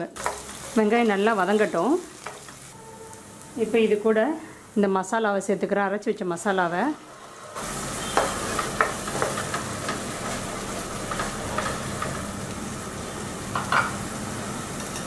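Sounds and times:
paste sizzling in hot oil: 0:00.2 - 0:03.9, 0:07.6 - 0:13.4.

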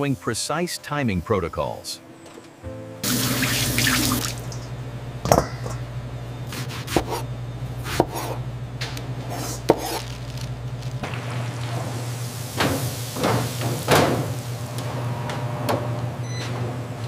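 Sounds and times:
tap water running into sink: 0:03.0 - 0:04.7
steady low hum: 0:03.6 - 0:16.2
knife chopping on cutting board: 0:06.5 - 0:07.2, 0:07.8 - 0:08.4, 0:09.3 - 0:10.0.

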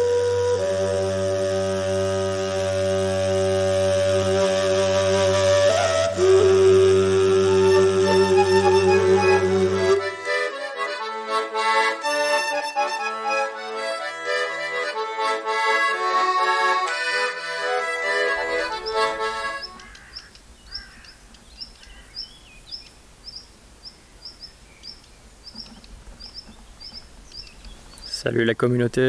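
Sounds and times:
accordion music: 0:00.0 - 0:22.3
bird alarm call: 0:18.4 - 0:28.4.

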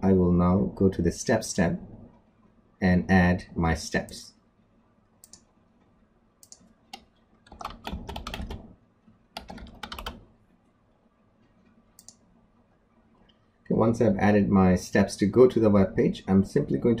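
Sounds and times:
typing on computer keyboard: 0:06.4 - 0:08.7, 0:09.4 - 0:10.3.

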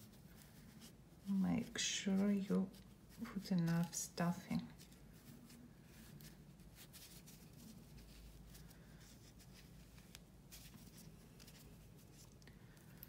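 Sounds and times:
hands rustling stuffing: 0:00.0 - 0:13.0.

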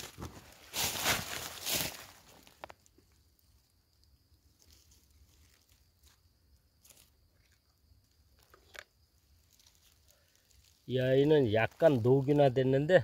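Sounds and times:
dry leaves crackling: 0:00.0 - 0:02.9, 0:04.0 - 0:06.2, 0:06.8 - 0:07.2, 0:09.2 - 0:13.0.

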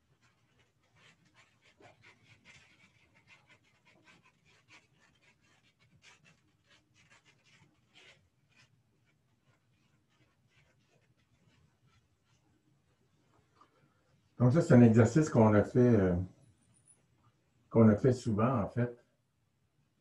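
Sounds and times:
eraser scrubbing chalkboard: 0:00.0 - 0:12.7.

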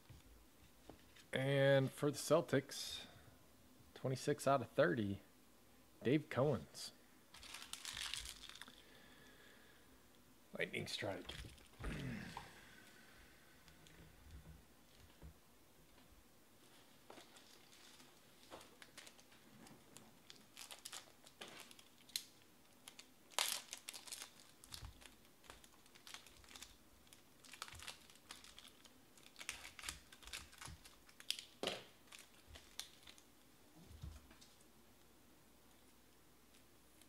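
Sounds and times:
plastic wrapping crinkling and tearing: 0:07.3 - 0:09.0, 0:11.3 - 0:11.8, 0:17.0 - 0:33.3.

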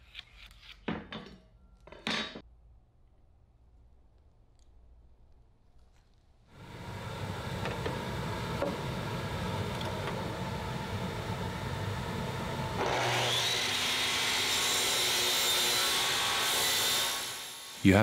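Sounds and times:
miter saw cutting plywood: 0:06.6 - 0:18.0.

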